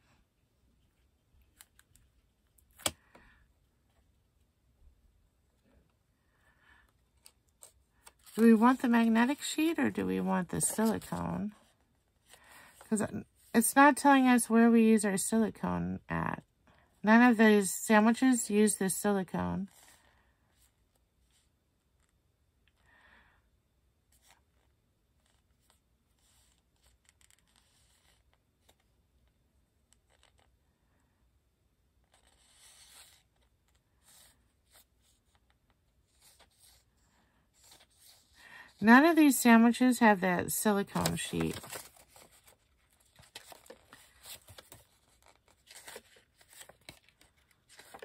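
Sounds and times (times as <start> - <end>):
paper pages rustling: 7.1 - 12.9, 32.1 - 48.0.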